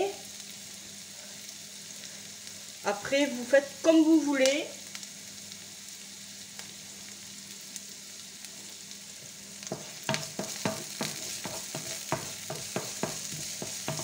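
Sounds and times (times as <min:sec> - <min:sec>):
onion and garlic sizzling in oil: 0:00.0 - 0:14.0
wooden spoon scraping pan: 0:09.7 - 0:14.0.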